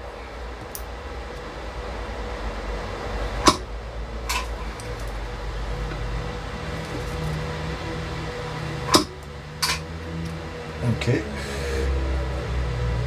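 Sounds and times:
steady hum: 0.0s - 13.0s
spot welder snaps: 3.4s - 3.6s, 8.9s - 9.8s.

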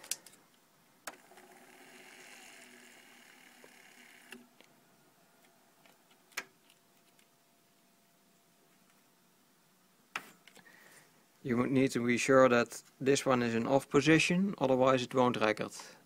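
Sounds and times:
tape motors whirring: 1.1s - 4.5s.

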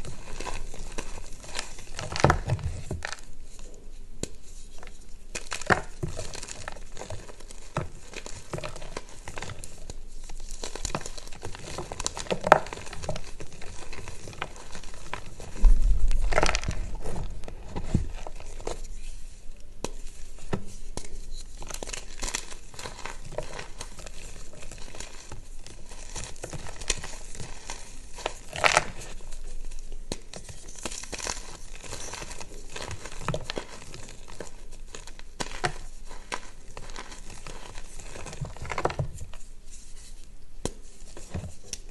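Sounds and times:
chalk crunching and crumbling: 0.0s - 41.9s
dull low thump: 15.6s - 16.4s
chalk pieces cracking: 21.0s - 39.1s.

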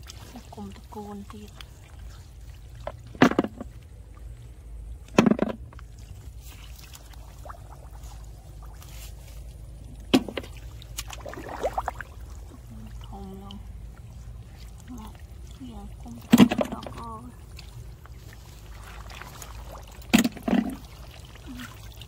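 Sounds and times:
muddy water splashing: 0.0s - 22.0s
steady low rumble: 0.0s - 22.0s.

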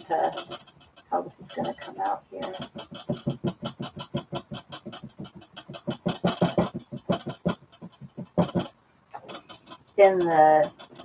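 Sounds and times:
paintbrush tapping on canvas: 1.5s - 11.0s.

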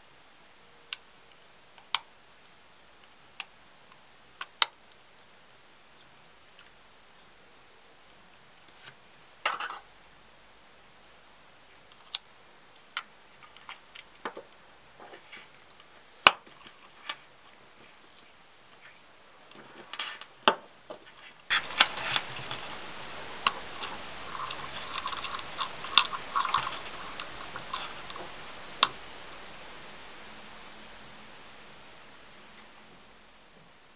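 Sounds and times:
steady hiss: 0.0s - 33.9s
rustling: 11.7s - 30.4s.

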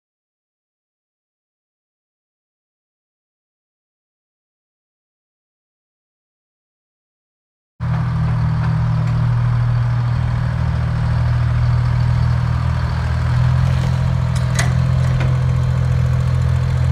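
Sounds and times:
crane engine idling: 7.8s - 16.9s.

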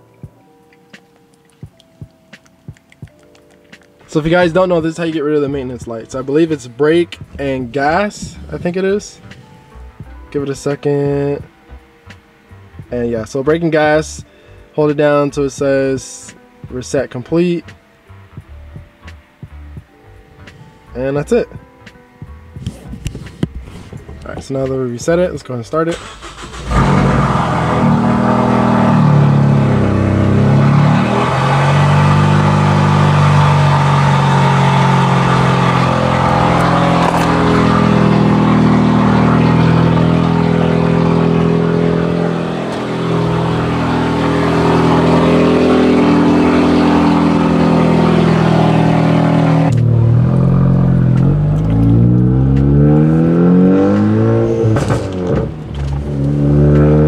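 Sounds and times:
car engine revving: 4.1s - 10.4s, 25.9s - 57.0s.

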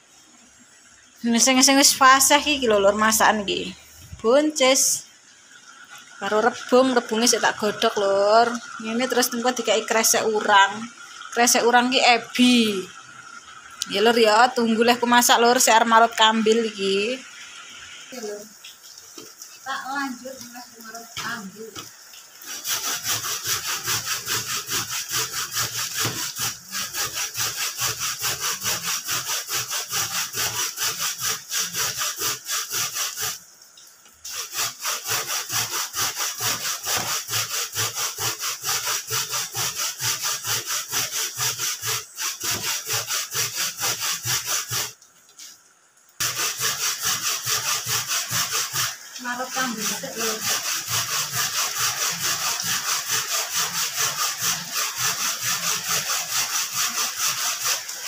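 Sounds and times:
coconut grated on metal grater: 6.2s - 12.9s, 13.8s - 17.2s, 20.3s - 33.4s, 34.3s - 45.0s, 46.2s - 58.0s.

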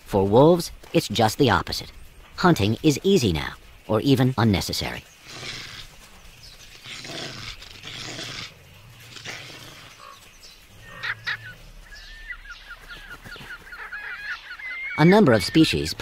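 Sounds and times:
bird chirping rapidly: 1.1s - 16.0s
wolves snarling and growling: 5.1s - 12.7s.

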